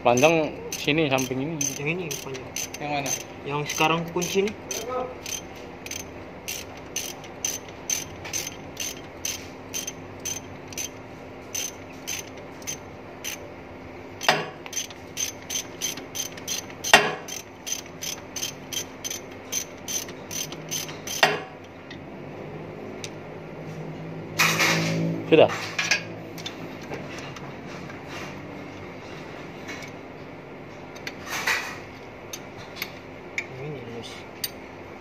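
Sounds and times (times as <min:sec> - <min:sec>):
ratchet wrench clicking: 0:00.1 - 0:13.4, 0:14.2 - 0:21.4.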